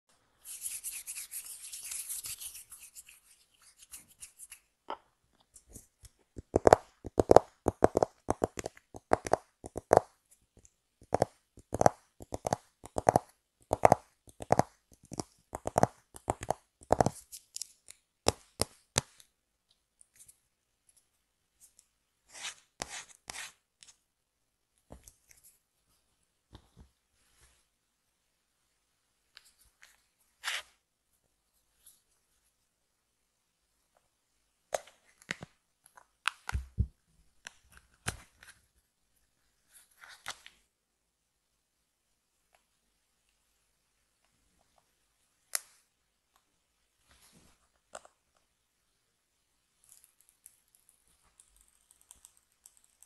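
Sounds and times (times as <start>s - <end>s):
paper card tapping and clicking: 6.0s - 10.1s.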